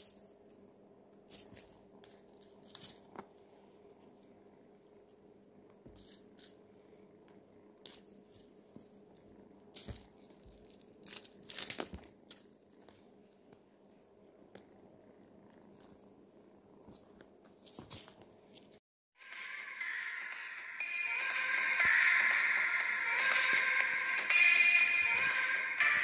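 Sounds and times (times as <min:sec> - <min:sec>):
faint steady hum: 0:00.0 - 0:18.8.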